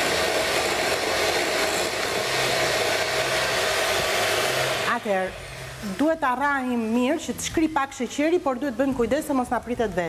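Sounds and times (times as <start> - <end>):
electric hand mixer whirring: 0.0 - 7.8.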